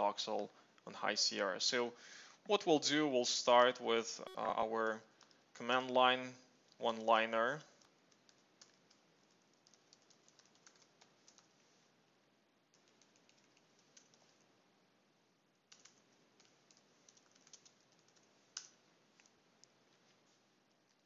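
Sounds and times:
faint computer keyboard typing: 4.3s - 6.0s, 7.6s - 11.7s, 12.7s - 14.4s, 15.7s - 21.0s.

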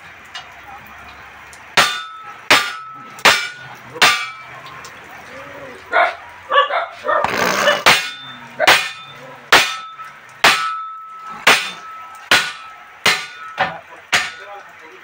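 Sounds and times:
hammer clanging on steel rim: 1.8s - 4.5s, 7.4s - 14.6s.

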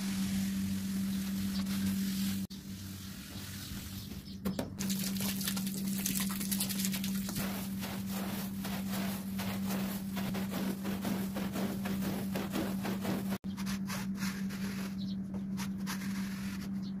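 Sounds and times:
brush scrubbing wet rug: 0.0s - 3.9s, 4.8s - 14.9s
squeegee scraping wet rug: 4.9s - 15.0s.

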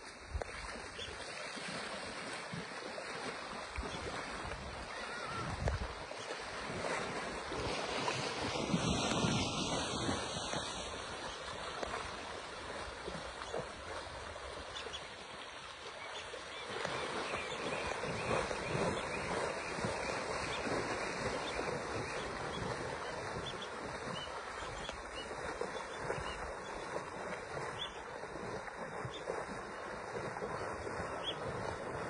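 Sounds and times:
animals splashing through river: 0.0s - 32.0s
wind noise on microphone: 3.7s - 13.2s, 16.8s - 27.8s.

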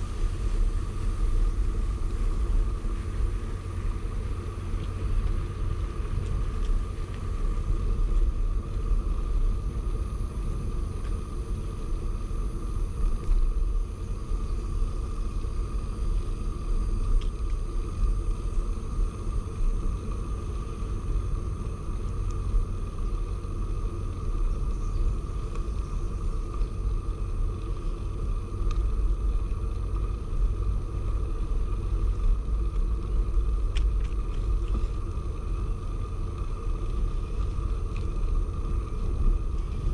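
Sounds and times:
faint steady tone: 0.0s - 39.9s
wind rumbling on microphone: 0.0s - 39.9s.

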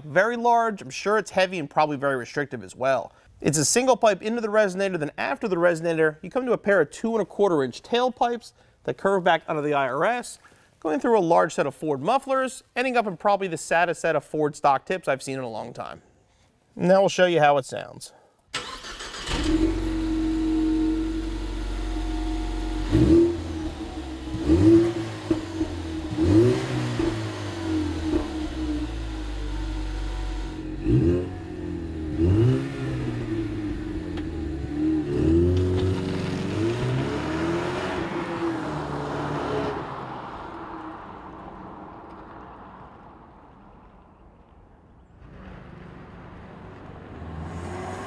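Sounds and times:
car engine idling and revving: 19.1s - 44.1s, 45.2s - 48.0s.

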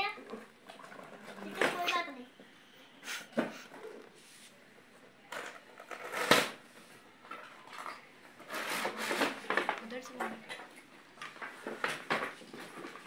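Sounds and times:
cardboard and plastic packaging rustling: 5.4s - 13.0s.

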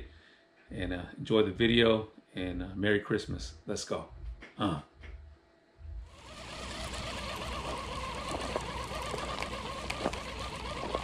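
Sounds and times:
fishing reel whirring: 6.1s - 11.0s.

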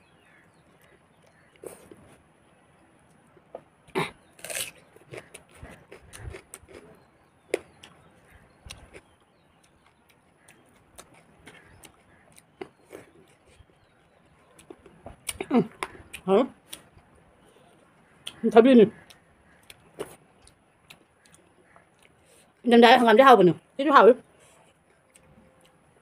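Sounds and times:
person chewing: 4.3s - 13.9s, 19.1s - 22.2s.

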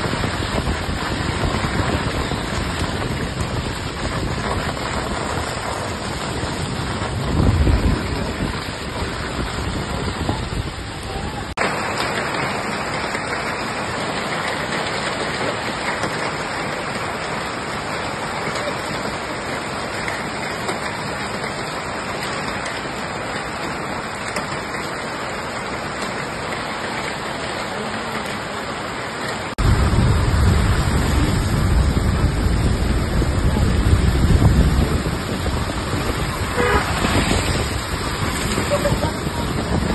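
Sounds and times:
deep rushing noise: 0.0s - 11.8s, 29.5s - 39.9s
heavy rain and hail: 0.0s - 39.9s.

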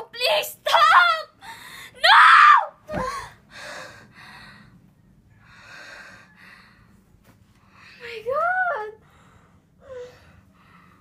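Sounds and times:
woman breathing heavily: 1.4s - 2.0s, 3.0s - 8.3s, 9.0s - 11.0s.

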